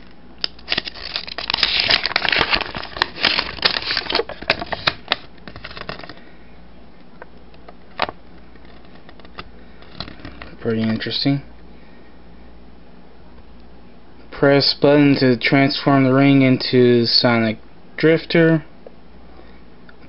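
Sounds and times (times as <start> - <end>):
paper crinkling and rustling: 0.4 - 6.2
sharp paper crackle: 0.4 - 6.2.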